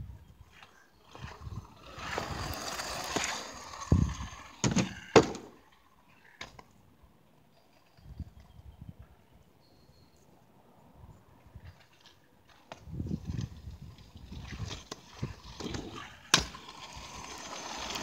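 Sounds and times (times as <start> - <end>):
scooter wheels rolling on asphalt: 0.0 - 9.6, 11.2 - 18.0
scooter clacking on ground: 0.5 - 6.7, 11.7 - 18.0.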